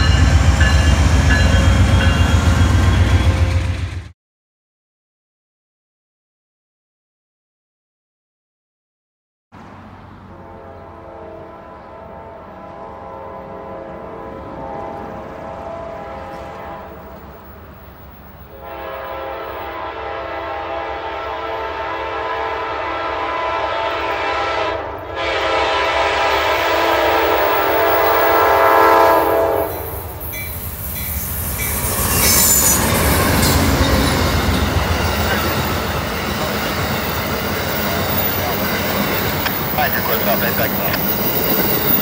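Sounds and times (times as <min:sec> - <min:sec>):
train horn blasts: 0:00.0 - 0:03.8, 0:10.2 - 0:17.4, 0:18.5 - 0:41.0
train wheels clattering over rail: 0:30.3 - 0:42.0.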